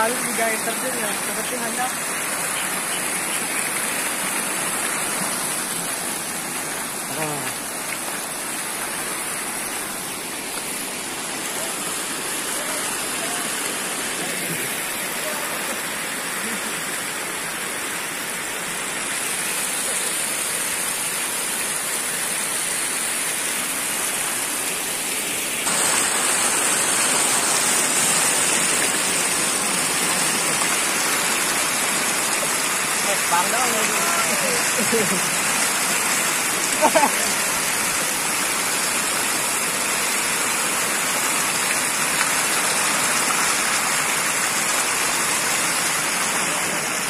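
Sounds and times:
floodwater rushing: 0:00.0 - 0:47.0.

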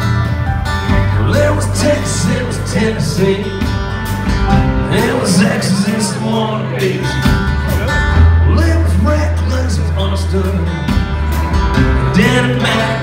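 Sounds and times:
live band playing: 0:00.0 - 0:13.0.

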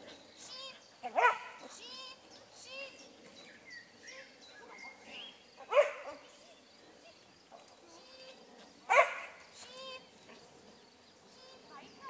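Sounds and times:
dog barking: 0:01.2 - 0:01.5, 0:05.7 - 0:06.2, 0:08.9 - 0:09.4.

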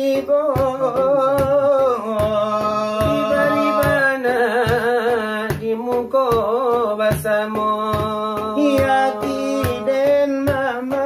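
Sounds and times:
men singing wavering lines: 0:00.0 - 0:05.4, 0:07.6 - 0:11.0.

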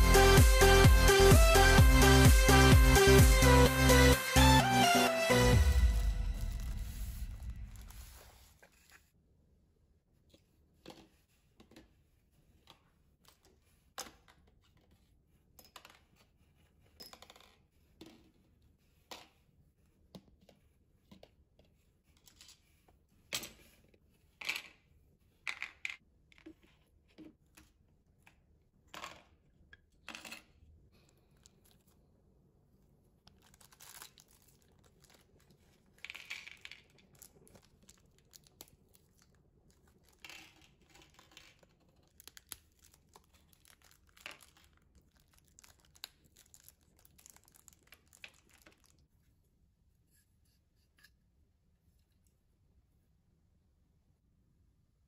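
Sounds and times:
plastic bags tearing and crinkling: 0:33.3 - 0:41.3, 0:42.0 - 0:48.9.

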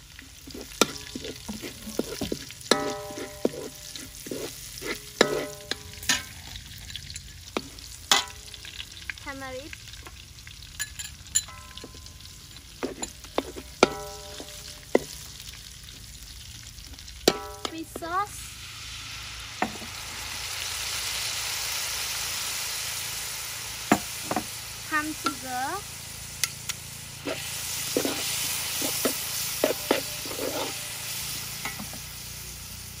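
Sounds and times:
spatula scraping wok: 0:00.0 - 0:08.8, 0:11.3 - 0:15.7, 0:23.9 - 0:33.0
oil sizzling: 0:00.0 - 0:33.0
spatula clanging on wok: 0:00.5 - 0:08.8, 0:10.8 - 0:15.2, 0:17.2 - 0:18.1, 0:25.2 - 0:25.5, 0:26.4 - 0:31.0, 0:31.6 - 0:32.1.

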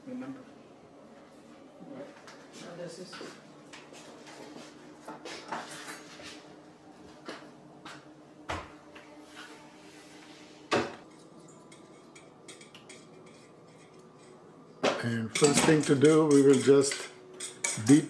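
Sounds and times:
bowl and utensils knocking: 0:14.8 - 0:18.0.

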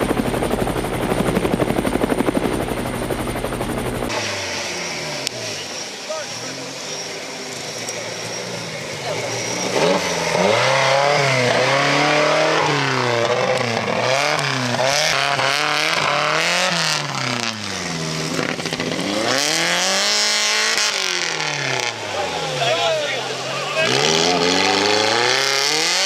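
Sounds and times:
off-road buggy engine revving: 0:03.8 - 0:26.0
faint spectators' voices: 0:05.3 - 0:10.4, 0:21.7 - 0:25.3.

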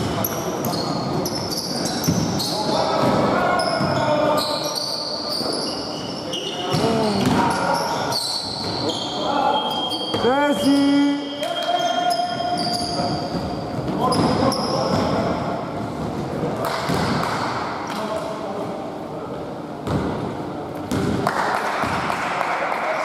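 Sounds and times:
sneaker squeaks: 0:00.0 - 0:15.6.

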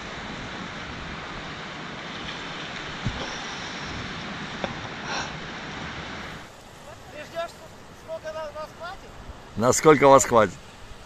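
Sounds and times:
wind noise on microphone: 0:00.0 - 0:06.5
sea surf washing ashore: 0:00.0 - 0:11.0.

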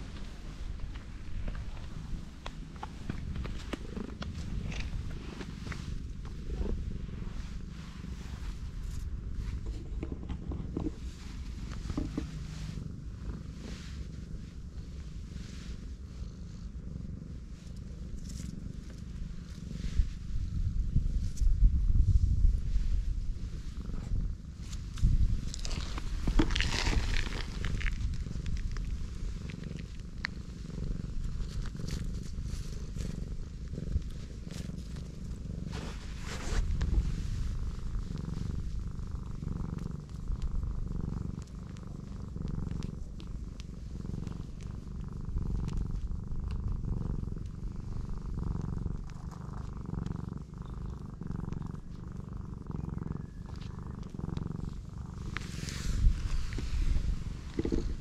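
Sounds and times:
cat purring: 0:00.0 - 0:58.0.

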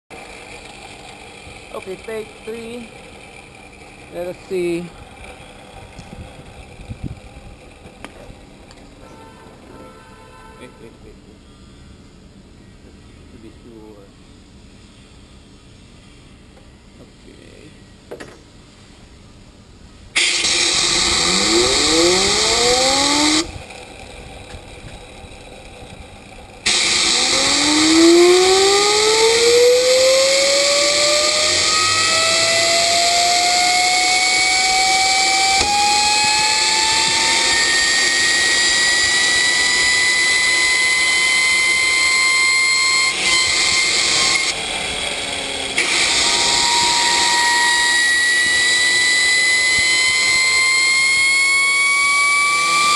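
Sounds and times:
turbine whine rising: 0:00.1 - 0:08.9, 0:20.2 - 0:52.9.

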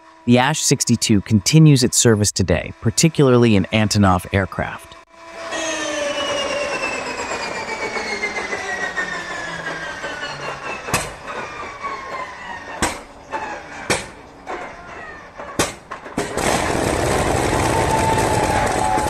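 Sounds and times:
starter whine: 0:00.0 - 0:16.3
aero engine running loudly: 0:00.0 - 0:19.0
engine cylinder pops: 0:15.6 - 0:16.5.

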